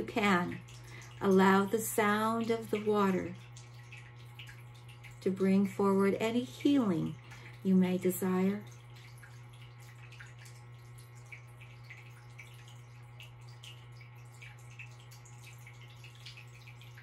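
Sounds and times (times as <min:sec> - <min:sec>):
steady low hum: 0:00.0 - 0:17.0
water drips and splashes: 0:00.0 - 0:17.0
water fountain trickling: 0:00.0 - 0:17.0.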